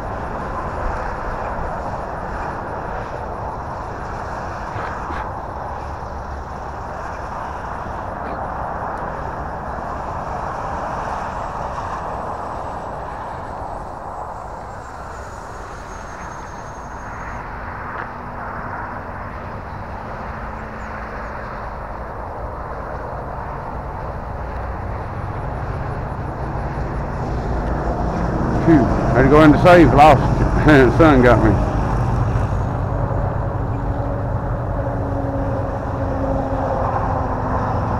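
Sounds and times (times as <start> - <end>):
faint high whine: 11.3 - 19.1
ducted fan jet whoosh: 21.7 - 37.9.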